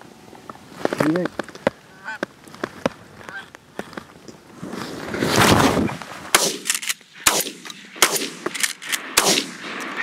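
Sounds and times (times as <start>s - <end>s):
shotgun blasts: 6.3s - 10.0s.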